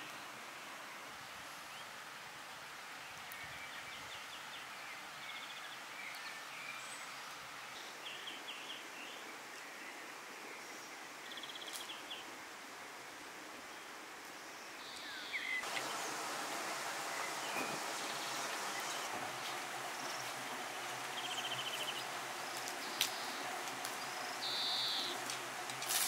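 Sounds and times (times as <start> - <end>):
steady background hiss: 0.0 - 26.0
small birds calling: 14.8 - 25.8.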